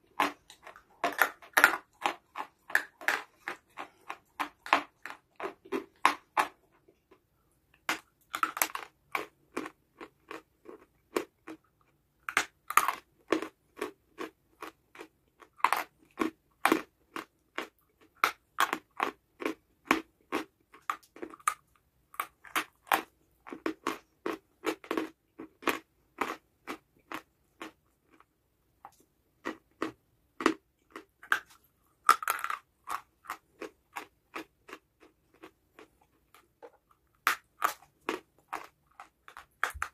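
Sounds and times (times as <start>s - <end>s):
person chewing crunchy clay: 0.0s - 39.9s.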